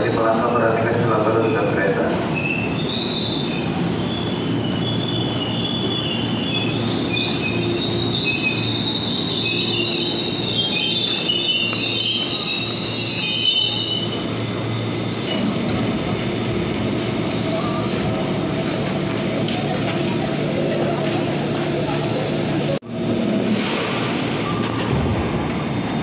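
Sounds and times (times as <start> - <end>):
train low rumble: 0.0 - 26.0
train wheels squealing: 1.4 - 15.5.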